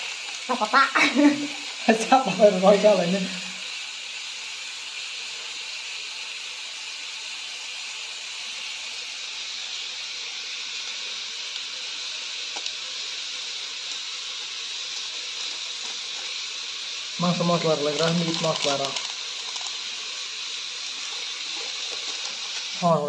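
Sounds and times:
steady hiss: 0.0s - 23.0s.

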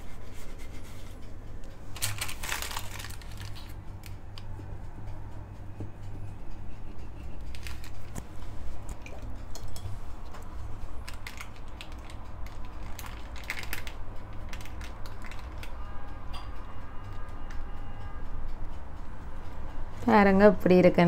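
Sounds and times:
metal spatula scraping on paper: 0.0s - 1.2s
steady low hum: 0.0s - 13.2s.

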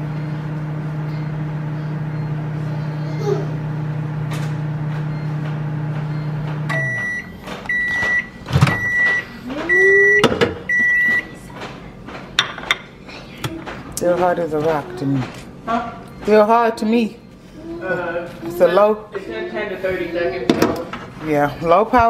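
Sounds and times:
microwave beeps: 0.0s - 11.4s, 15.7s - 17.4s
microwave oven humming: 0.0s - 22.0s.

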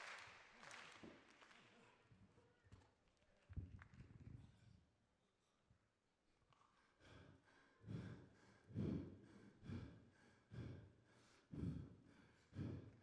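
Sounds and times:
heavy breathing into microphone: 7.0s - 13.0s.

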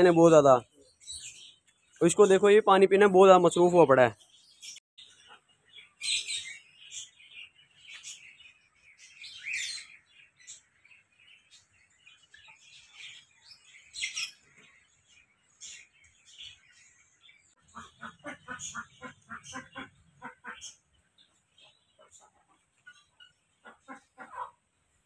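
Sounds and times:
small birds chirping: 0.0s - 25.0s
duck quacking rapidly: 17.7s - 20.7s, 23.6s - 24.6s.

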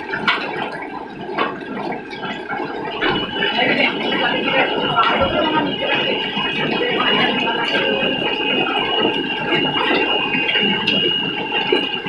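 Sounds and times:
steady high tone: 2.9s - 12.0s.

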